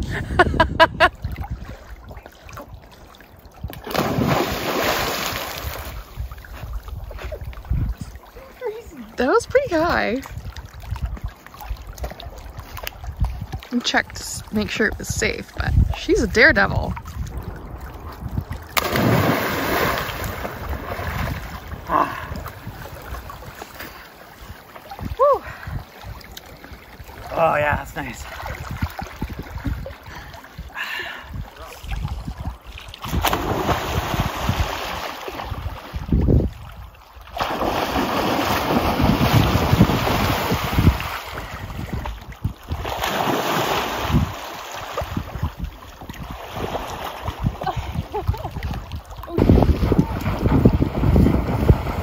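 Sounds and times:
water sloshing and lapping: 0:00.0 - 0:52.0
big splash into water: 0:03.7 - 0:06.4, 0:17.0 - 0:23.5, 0:33.0 - 0:36.0, 0:37.3 - 0:41.6, 0:42.7 - 0:45.5.

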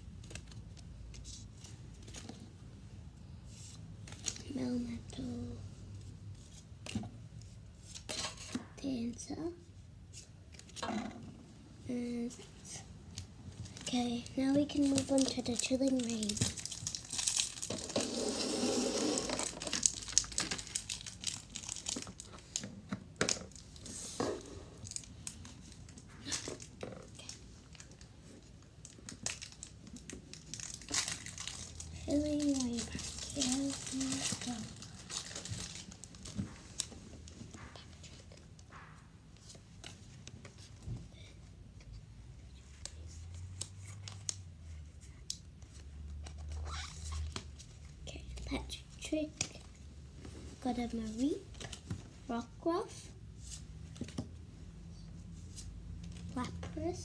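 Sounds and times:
foil wrapper crinkling and tearing: 0:14.7 - 0:22.6, 0:29.1 - 0:36.4
trading cards clicking and rustling: 0:28.8 - 0:38.1.

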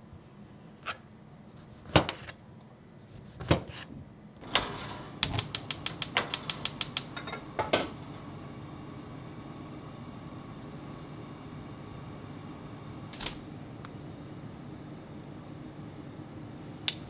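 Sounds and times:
gas stove igniter clicking: 0:05.2 - 0:08.3, 0:16.8 - 0:17.0.

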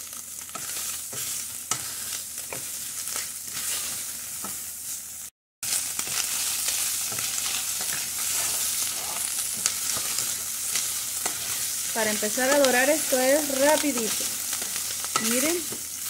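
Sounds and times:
pork sizzling in a pot: 0:00.0 - 0:16.0
wooden spoon scraping a pot: 0:00.5 - 0:04.6, 0:07.1 - 0:15.8.

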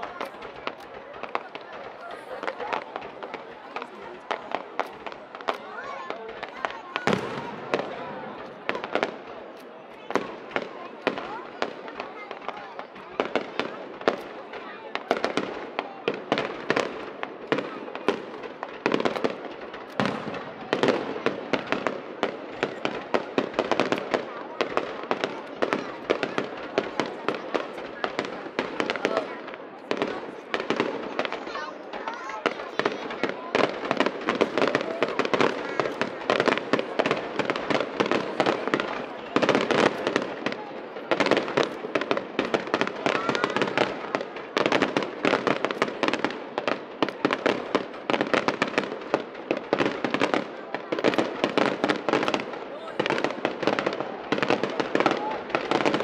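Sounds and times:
fireworks bursting: 0:00.0 - 0:56.0.

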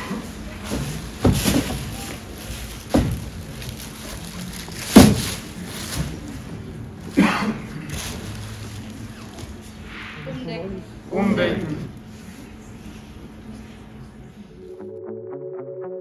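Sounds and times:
plastic bags rustling: 0:00.2 - 0:09.8
dull thumps of bags set down: 0:00.6 - 0:02.1, 0:04.9 - 0:06.2.

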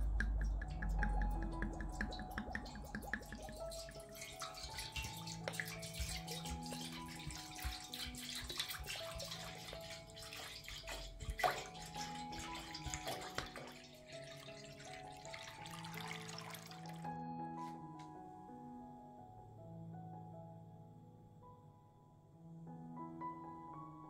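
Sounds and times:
small knocks: 0:00.0 - 0:08.1
drips: 0:00.0 - 0:17.1
liquid pouring and splashing: 0:00.0 - 0:17.2
soft background music: 0:00.0 - 0:24.0.

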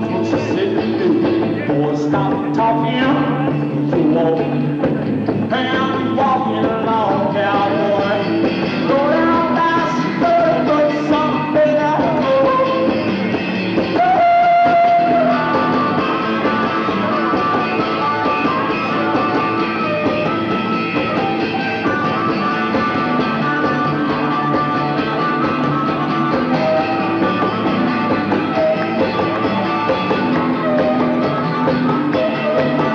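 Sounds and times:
live rock music: 0:00.0 - 0:32.9
harmonica bent notes: 0:12.3 - 0:32.9.

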